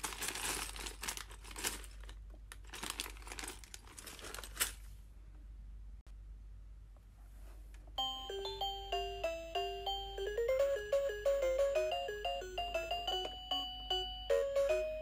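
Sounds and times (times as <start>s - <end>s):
plastic bag crinkling: 0.0s - 4.9s.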